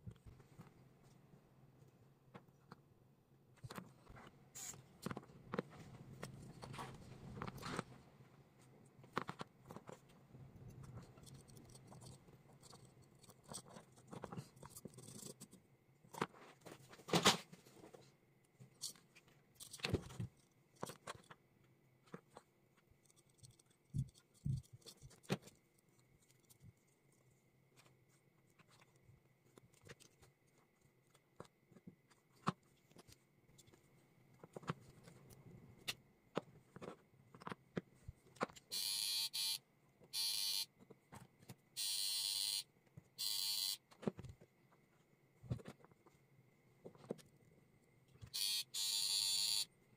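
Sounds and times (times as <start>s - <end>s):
plastic parts clicking and scraping: 8.6s - 38.8s.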